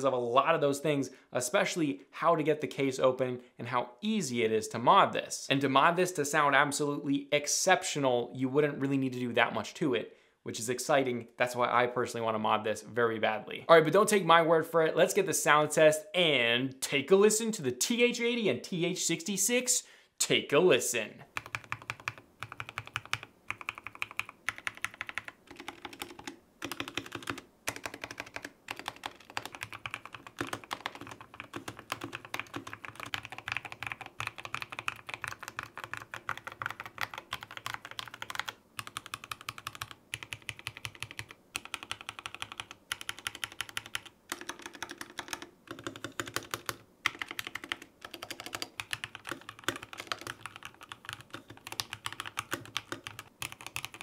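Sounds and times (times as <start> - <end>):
mechanical keyboard typing: 21.3 - 54.0.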